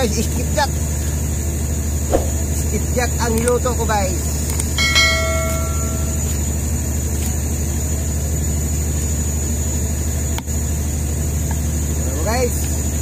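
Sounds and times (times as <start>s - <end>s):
boat engine droning: 4.8s - 6.7s.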